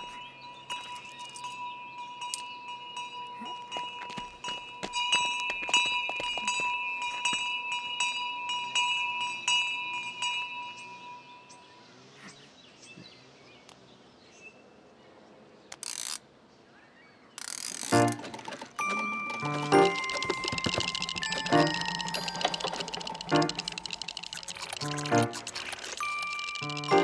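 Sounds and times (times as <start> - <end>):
rustling scraping noise: 17.6 - 27.0.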